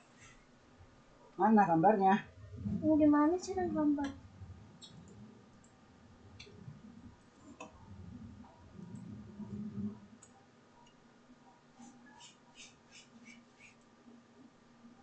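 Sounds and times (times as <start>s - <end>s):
faint low rumble: 0.8s - 11.4s.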